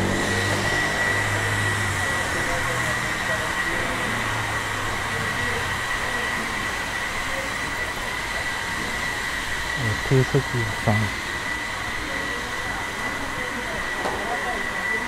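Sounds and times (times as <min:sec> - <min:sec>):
person's voice: 0:09.8 - 0:11.2
street background noise: 0:09.8 - 0:11.4.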